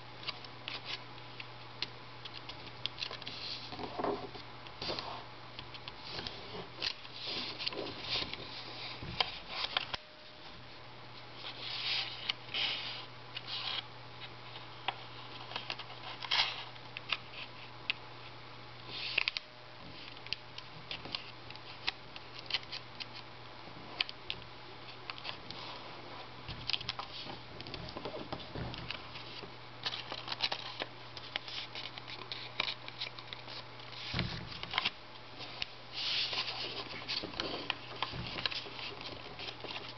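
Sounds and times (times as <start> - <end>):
faint low hum: 0.0 - 39.9
paper rustling and crinkling: 5.9 - 10.5, 14.5 - 17.7, 24.9 - 39.9.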